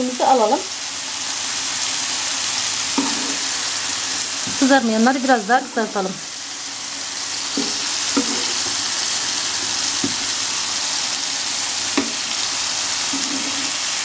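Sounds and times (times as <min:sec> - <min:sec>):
food sizzling in hot oil: 0:00.0 - 0:14.0
metal spatula knocking pan: 0:07.6 - 0:08.6, 0:12.0 - 0:12.3.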